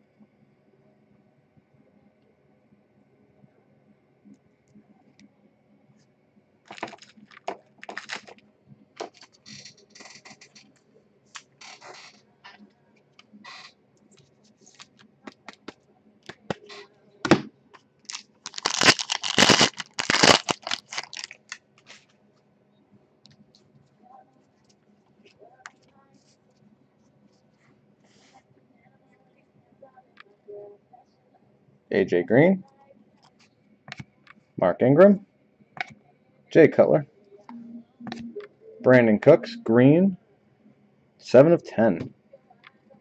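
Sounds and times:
foil pack tearing open: 0:06.7 - 0:07.1, 0:07.8 - 0:08.4, 0:18.1 - 0:22.0
packaging scrapes and rustles: 0:06.7 - 0:08.4, 0:18.1 - 0:22.0
trading cards being handled: 0:06.7 - 0:08.4, 0:18.1 - 0:22.1.

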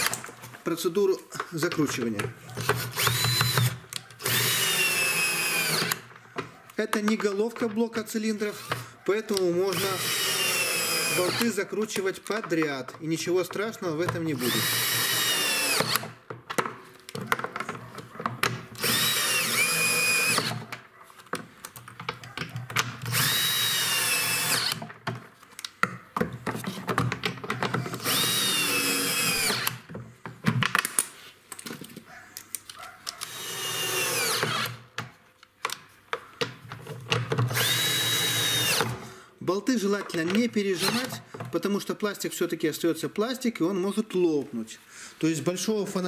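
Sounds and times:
tool clicks and knocks: 0:01.4 - 0:04.8, 0:05.7 - 0:08.0, 0:11.2 - 0:14.8, 0:15.5 - 0:28.6, 0:29.2 - 0:33.4, 0:34.2 - 0:39.0, 0:39.9 - 0:41.6
drill motor whine: 0:02.6 - 0:06.0, 0:09.7 - 0:11.4, 0:14.4 - 0:16.1, 0:18.8 - 0:20.6, 0:23.1 - 0:24.8, 0:28.0 - 0:29.8, 0:33.2 - 0:34.8, 0:37.5 - 0:38.9.

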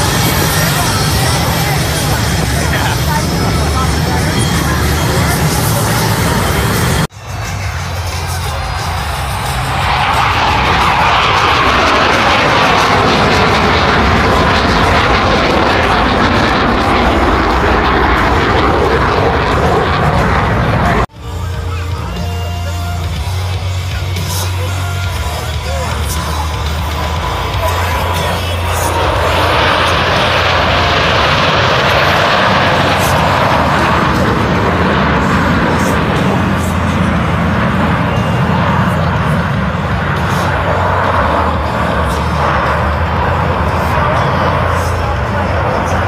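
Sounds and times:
jet flying past: 0:00.0 - 0:21.2, 0:23.0 - 0:46.0.

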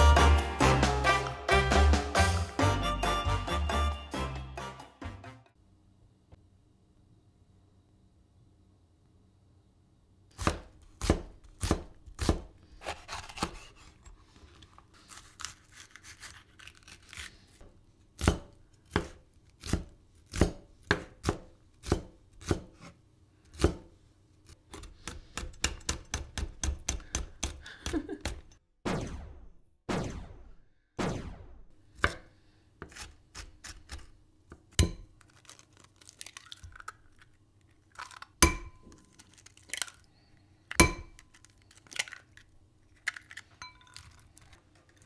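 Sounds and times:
knife chopping on wooden board: 0:10.4 - 0:13.8, 0:18.2 - 0:23.9, 0:24.7 - 0:27.6, 0:32.0 - 0:35.1.

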